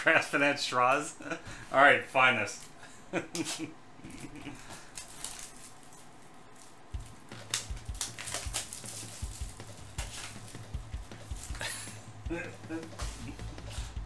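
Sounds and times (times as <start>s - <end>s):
cardboard crinkling and rustling: 4.7s - 11.6s.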